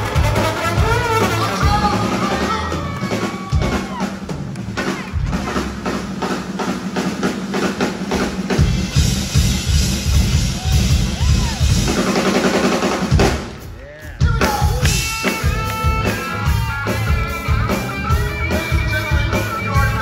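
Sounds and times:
drum-kit beat: 0:00.0 - 0:20.0
live band playing: 0:00.0 - 0:20.0
bass and kick drum: 0:08.2 - 0:12.0.

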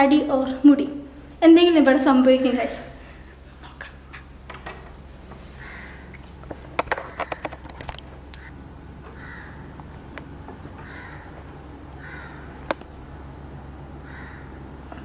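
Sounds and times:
bird calling: 0:05.5 - 0:12.7, 0:14.0 - 0:15.0.

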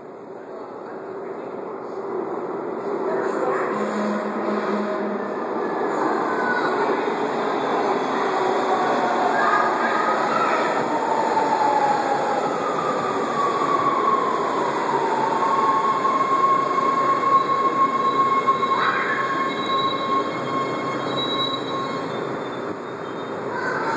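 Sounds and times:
subway train rumble: 0:00.0 - 0:23.9
high wheel squeal: 0:15.9 - 0:23.9.

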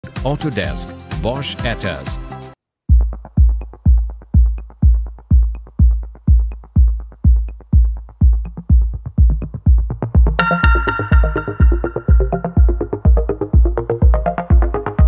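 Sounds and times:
kick drum beat: 0:02.9 - 0:15.0.

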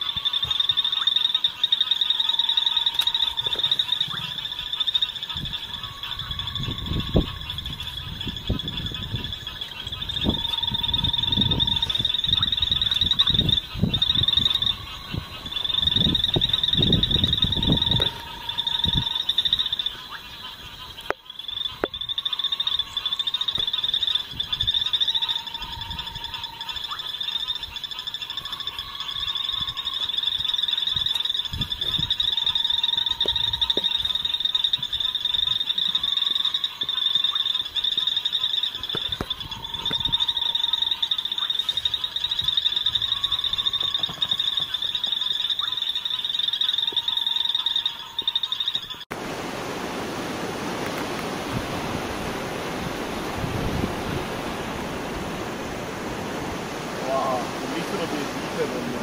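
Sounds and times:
low steady frog note: 0:00.0 - 0:20.2, 0:39.0 - 0:48.6
frogs trilling: 0:00.0 - 0:49.1, 0:50.9 - 0:59.0.

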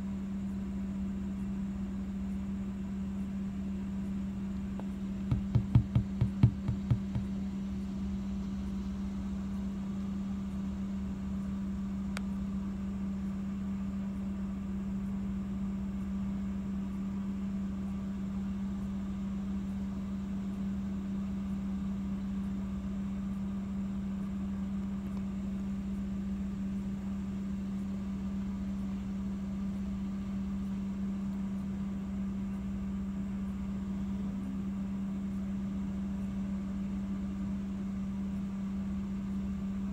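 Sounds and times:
machine hum: 0:00.0 - 0:39.9
quick thumps: 0:05.3 - 0:07.4.

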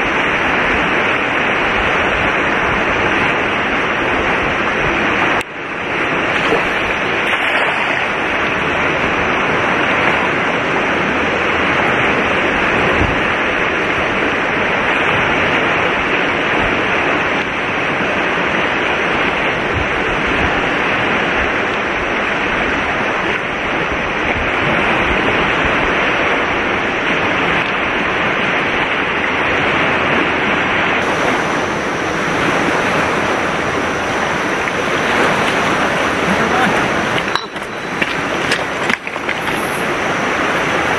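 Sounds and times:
fast-flowing river rushing: 0:00.0 - 0:40.9.

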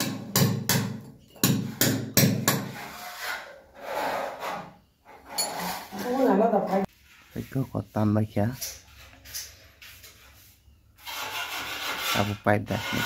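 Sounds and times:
hammer striking chisel into wall: 0:00.0 - 0:02.8.

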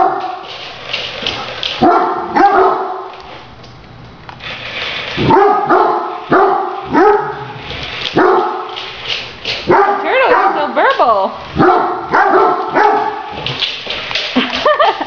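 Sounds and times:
dog barking deeply: 0:09.7 - 0:10.6, 0:11.6 - 0:13.3.

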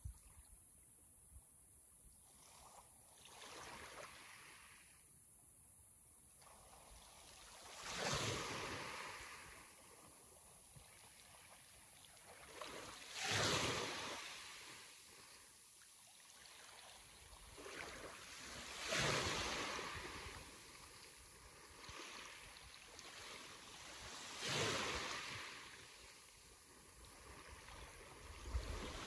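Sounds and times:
sea waves breaking: 0:12.3 - 0:15.3, 0:16.4 - 0:26.2.

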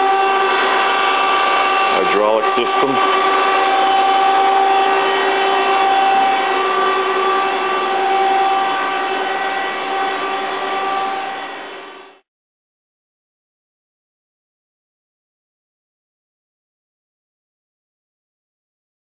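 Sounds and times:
hydraulic pump humming and whining: 0:00.0 - 0:12.2.

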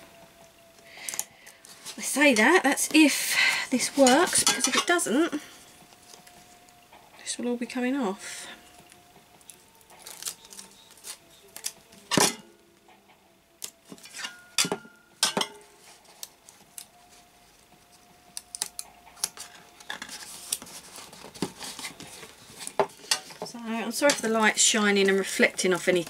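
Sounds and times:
foil crinkling: 0:00.8 - 0:06.8, 0:08.5 - 0:12.2, 0:15.8 - 0:17.3, 0:17.9 - 0:26.0.

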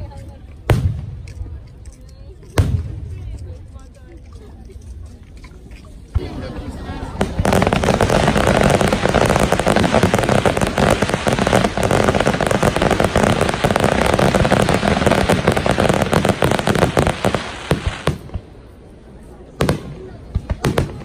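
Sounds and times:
fireworks crackling: 0:06.1 - 0:21.0
fireworks bangs: 0:06.2 - 0:18.6, 0:19.5 - 0:21.0.

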